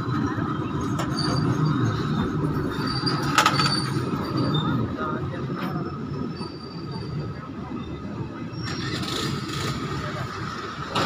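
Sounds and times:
train wheels rumbling on track: 0.0 - 11.0.

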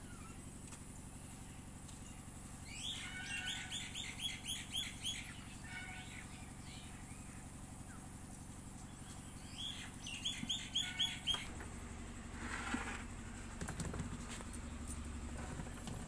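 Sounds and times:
steady low hum: 0.0 - 16.0
bird chirping: 2.0 - 8.1, 8.8 - 11.5.

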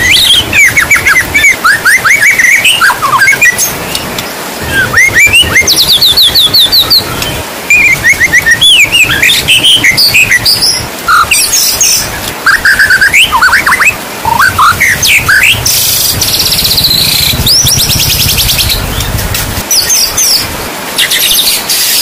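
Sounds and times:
bird singing whistled phrases: 0.0 - 4.0, 4.6 - 19.0
rattling bird trill: 4.7 - 22.0
rain hiss: 13.4 - 22.0
low rumble: 14.2 - 19.6.

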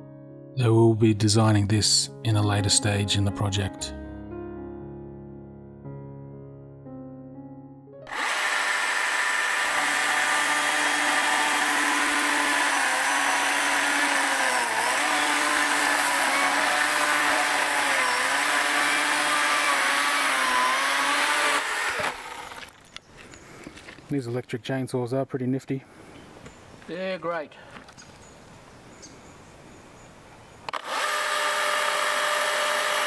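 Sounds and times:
electric chainsaw cutting wood: 8.0 - 22.9, 30.7 - 33.0.

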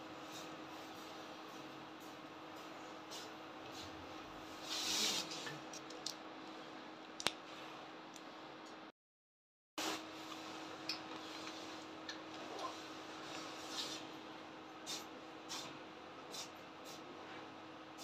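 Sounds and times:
brush swishing over paper: 3.1 - 5.4, 12.8 - 14.2.

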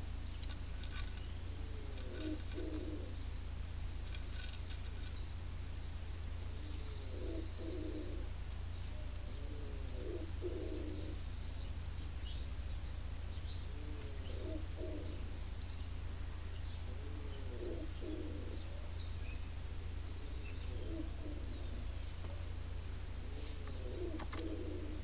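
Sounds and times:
small birds chirping: 0.0 - 25.0
steady low hum: 0.0 - 25.0
pigeon cooing: 0.8 - 3.3, 6.5 - 11.4, 13.3 - 25.0.

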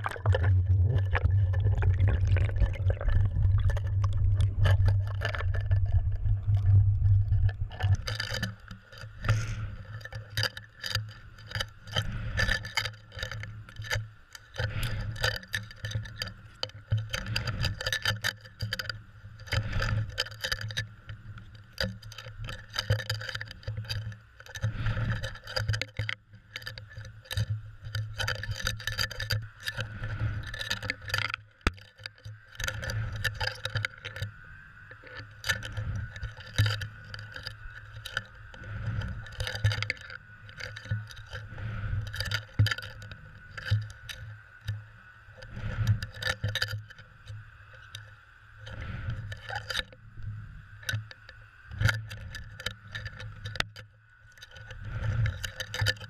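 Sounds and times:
low hum: 0.0 - 10.6
muffled rush of water: 0.0 - 56.0.

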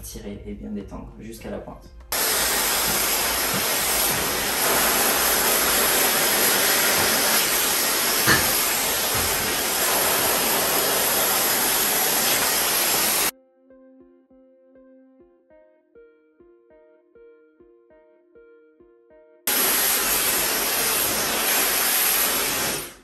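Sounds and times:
hair dryer blowing: 2.1 - 13.3, 19.5 - 23.0.

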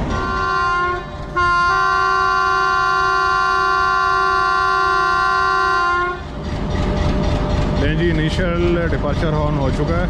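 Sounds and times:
locomotive air horn blast: 0.1 - 6.3.

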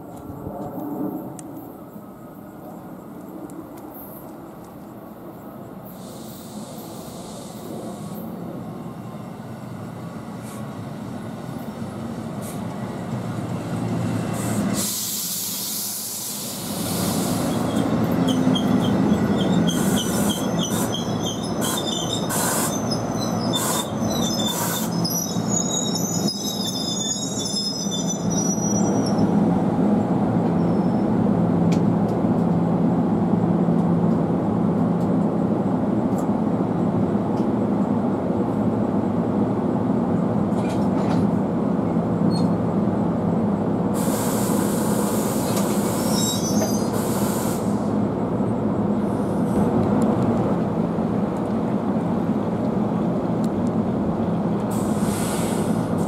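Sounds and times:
train cars rumbling past: 0.0 - 56.0
train wheels squealing: 13.7 - 29.4, 30.5 - 31.1, 42.3 - 42.6, 44.0 - 47.9.

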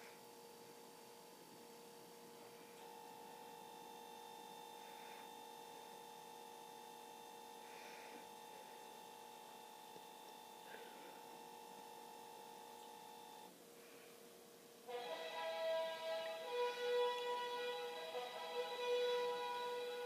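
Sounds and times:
faint electrical hum: 0.0 - 20.0
music: 14.9 - 20.0.

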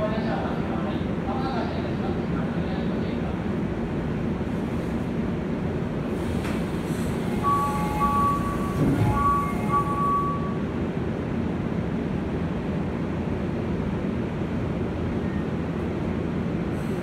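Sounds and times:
train equipment hum: 3.4 - 17.0
train doors sliding shut: 6.0 - 10.6
two-note electronic door chime: 7.4 - 10.6.

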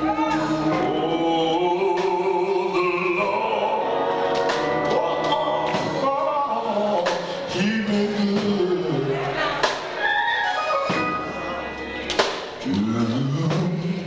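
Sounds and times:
man singing gospel song: 0.0 - 9.6, 12.6 - 14.0
musical accompaniment: 0.0 - 14.0.

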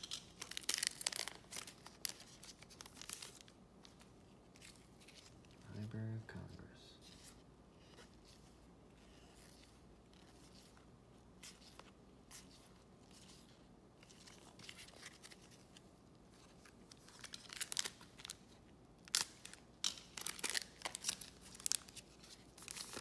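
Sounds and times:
plastic wrapper crinkling and tearing: 0.0 - 5.6, 12.4 - 23.0.

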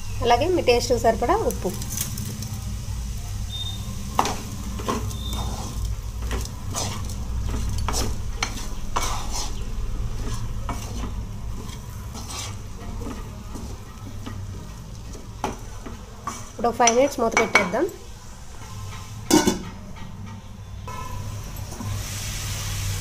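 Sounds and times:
vegetables sizzling: 0.0 - 23.0
wooden spatula scraping a pan: 4.1 - 17.7, 18.4 - 22.0.

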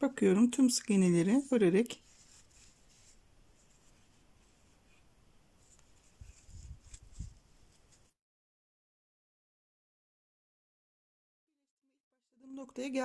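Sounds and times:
crochet hook rustling yarn: 0.0 - 8.1.

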